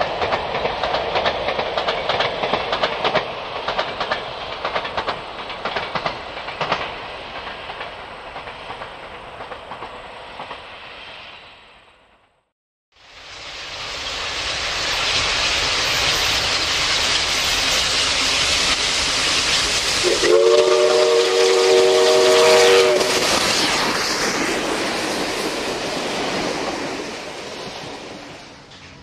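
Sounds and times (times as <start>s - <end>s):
steam locomotive running past: 0.0s - 29.0s
steam whistle chord: 20.0s - 23.2s.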